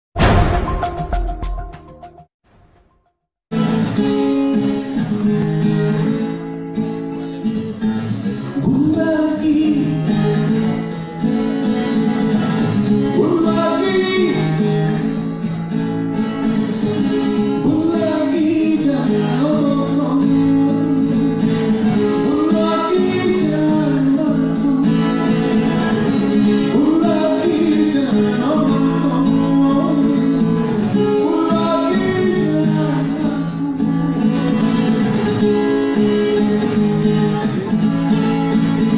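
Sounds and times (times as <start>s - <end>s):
acoustic guitar strumming: 3.5s - 38.9s
man singing into a microphone: 8.4s - 10.8s, 12.5s - 15.2s, 17.0s - 35.2s.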